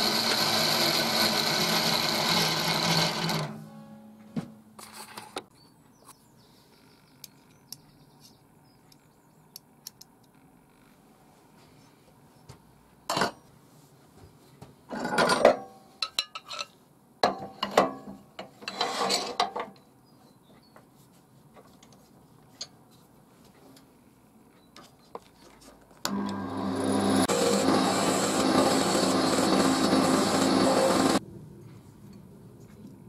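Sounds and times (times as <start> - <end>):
lathe motor humming: 0.0 - 3.6, 26.1 - 31.2
metal clanking and scraping: 14.9 - 16.8, 17.4 - 19.7.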